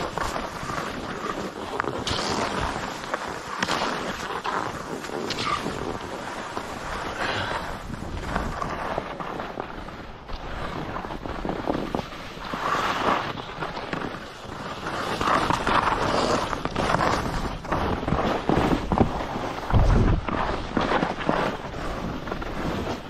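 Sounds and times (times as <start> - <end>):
skis scraping over snow: 0.0 - 23.0
wind buffeting microphone: 5.3 - 12.6, 17.1 - 22.1.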